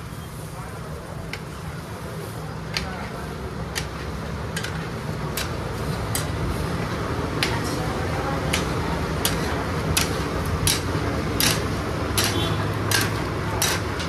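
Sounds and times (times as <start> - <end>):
steady background noise: 0.0 - 14.0
metal spatula striking iron pan: 8.5 - 14.0.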